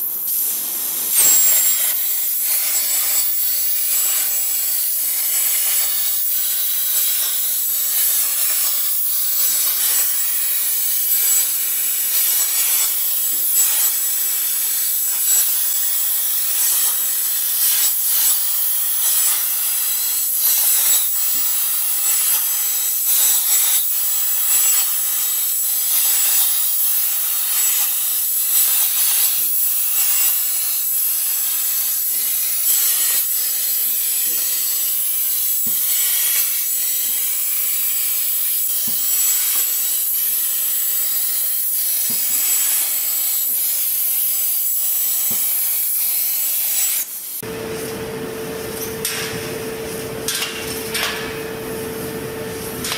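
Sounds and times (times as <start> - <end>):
plasma torch hissing and crackling: 0.0 - 47.5, 48.6 - 52.9
thin high steady tone: 0.1 - 11.5.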